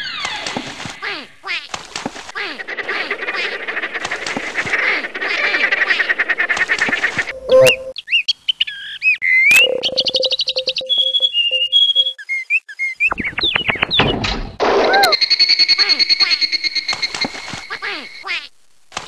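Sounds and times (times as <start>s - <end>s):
duck-like quacking chatter: 2.4s - 7.3s, 17.7s - 18.5s.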